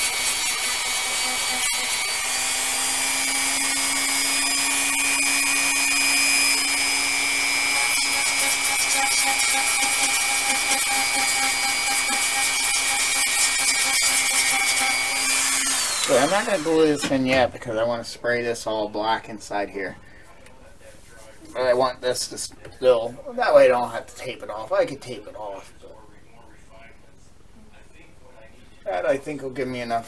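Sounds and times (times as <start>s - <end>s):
rotary tool grinding plastic: 0.0s - 17.2s.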